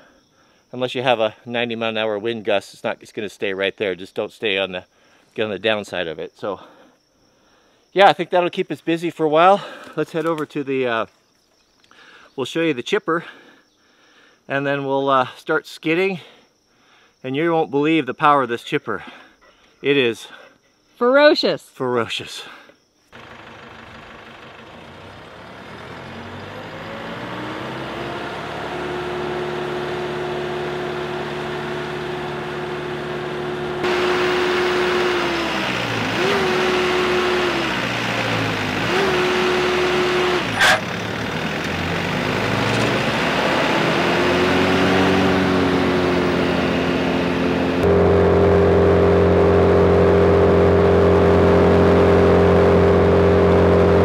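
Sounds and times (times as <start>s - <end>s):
diesel engine revving: 23.2s - 54.0s.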